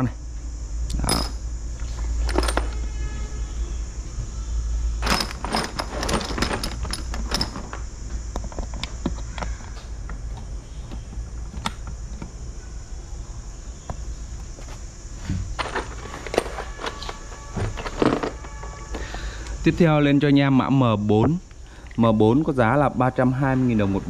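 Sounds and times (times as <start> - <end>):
steady low hum: 0.0 - 24.0
small hard parts clinking: 0.9 - 1.4, 2.2 - 2.8, 5.0 - 9.6, 15.6 - 19.6.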